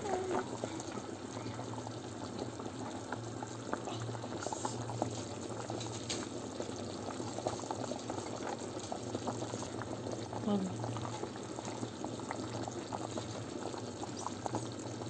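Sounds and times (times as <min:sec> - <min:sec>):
low steady hum: 0:00.0 - 0:05.9
stew bubbling in a pot: 0:00.0 - 0:15.0.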